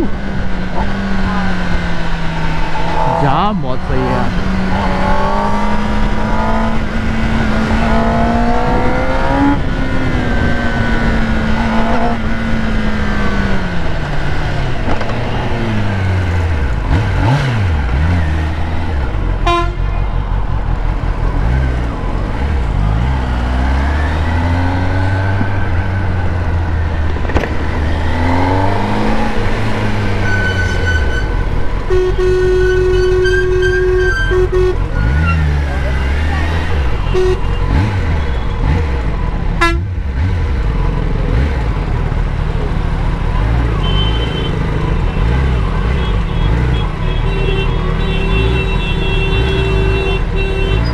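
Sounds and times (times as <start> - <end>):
motorcycle engine revving: 0.0 - 50.9
vehicle horns honking: 19.4 - 20.1, 30.0 - 38.8, 39.6 - 39.9, 43.7 - 50.9.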